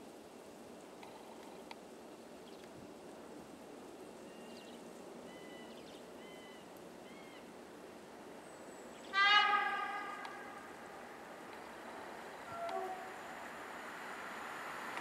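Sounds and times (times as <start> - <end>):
faint steady hiss: 0.0 - 15.0
train horn blast: 9.2 - 11.1, 12.4 - 13.6.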